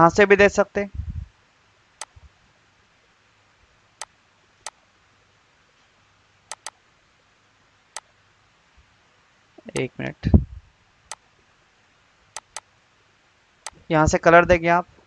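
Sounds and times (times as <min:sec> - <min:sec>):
computer mouse button clicking: 0:06.5 - 0:06.8, 0:12.4 - 0:12.7.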